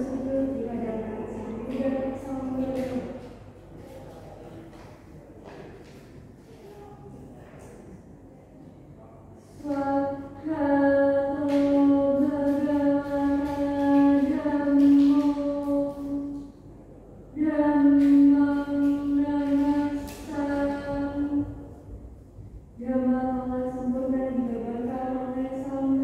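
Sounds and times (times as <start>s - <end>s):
woman chanting: 0.0s - 3.4s, 9.4s - 16.6s, 17.2s - 22.0s, 22.8s - 26.0s.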